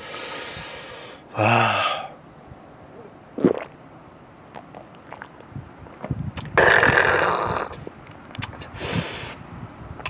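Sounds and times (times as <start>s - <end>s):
loud breathy hiss: 0.0s - 2.2s, 8.6s - 9.4s
person burping: 1.3s - 2.2s, 3.4s - 3.7s, 6.4s - 7.8s.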